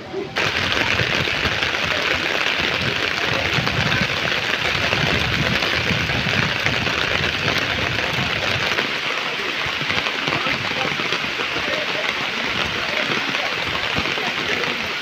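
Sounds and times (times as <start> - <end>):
heavy rain on pavement: 0.0 - 15.0.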